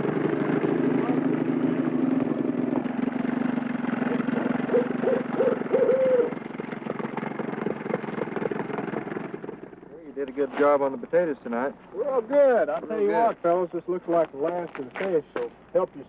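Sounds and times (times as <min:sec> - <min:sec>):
owl hooting: 0:04.0 - 0:06.4.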